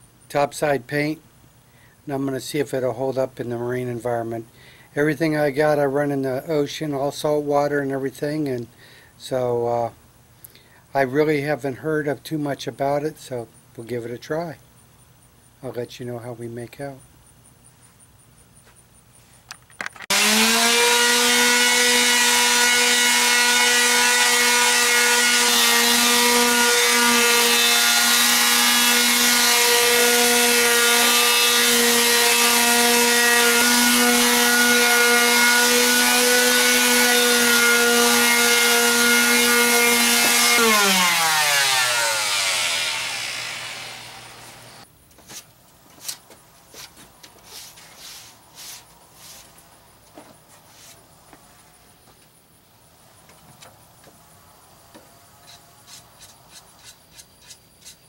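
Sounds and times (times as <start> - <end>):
electric palm sander running: 20.1 - 44.8.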